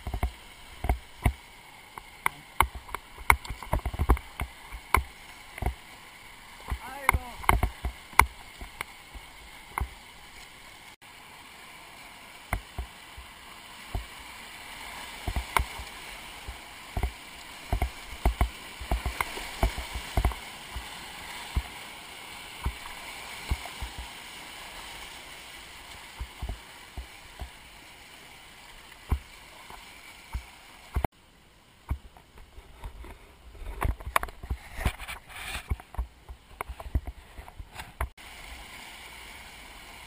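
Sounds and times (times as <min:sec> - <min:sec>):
whitewater rushing: 0:00.0 - 0:31.1, 0:38.2 - 0:40.0
water slapping against a boat: 0:06.5 - 0:10.0, 0:15.1 - 0:21.8, 0:22.5 - 0:24.2, 0:26.0 - 0:27.6.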